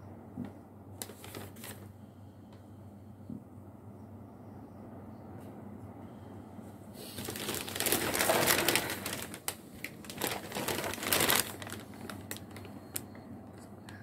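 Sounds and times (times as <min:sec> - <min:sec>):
plastic bag crinkling: 0:01.0 - 0:01.9, 0:07.0 - 0:13.2.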